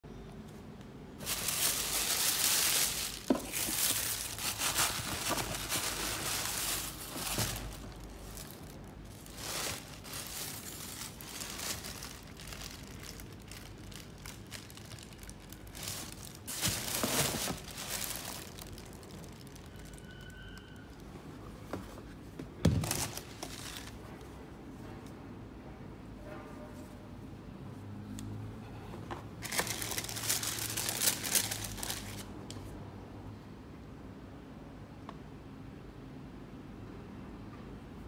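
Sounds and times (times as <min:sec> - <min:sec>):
cardboard box rustling: 0:01.2 - 0:12.1, 0:15.9 - 0:18.4
wrapping paper crinkling: 0:01.2 - 0:21.1, 0:22.8 - 0:24.0, 0:29.4 - 0:32.4.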